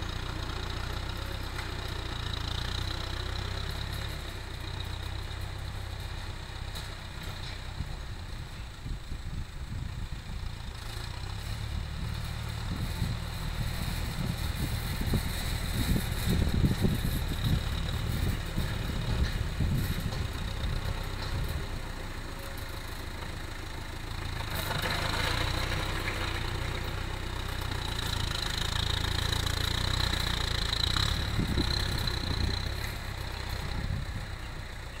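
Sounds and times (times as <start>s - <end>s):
tractor engine chugging: 0.0s - 35.0s.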